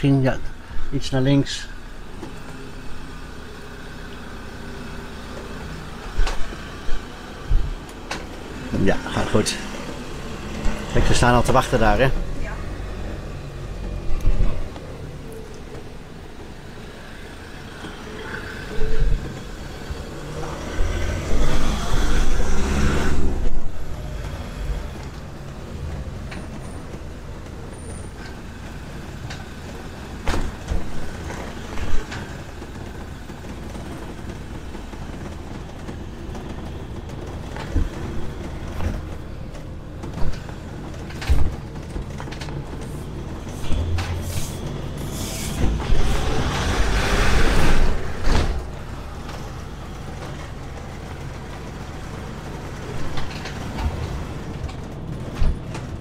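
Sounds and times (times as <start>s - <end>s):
engine and road rumble: 0.0s - 56.0s
knocks and rattles: 18.8s - 45.0s, 45.6s - 56.0s.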